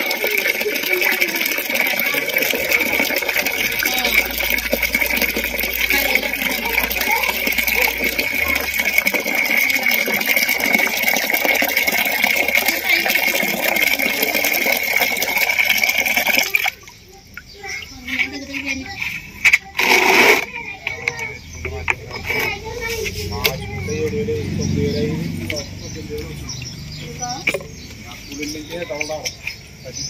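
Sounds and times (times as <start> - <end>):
water pouring into plastic tub: 0.0 - 18.5, 19.6 - 23.8.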